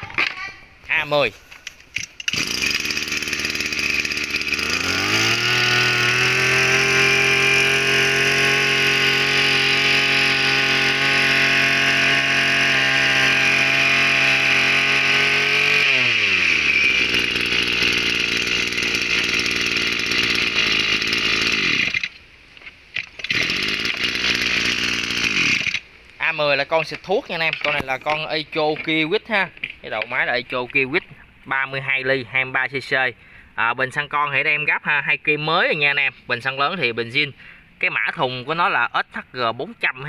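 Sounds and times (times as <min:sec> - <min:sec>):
two-stroke sprayer engine revving: 0:02.0 - 0:22.2, 0:23.2 - 0:25.8.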